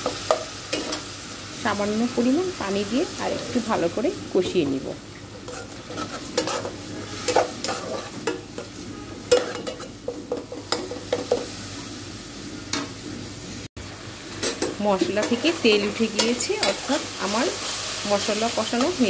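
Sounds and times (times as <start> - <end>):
paste sizzling in oil: 0.0 - 19.0
metal spatula scraping pot: 5.4 - 11.4.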